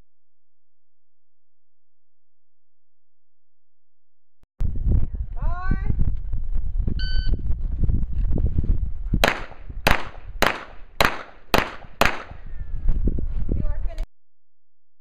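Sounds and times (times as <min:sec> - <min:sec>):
pistol shots: 0:09.2 - 0:12.4.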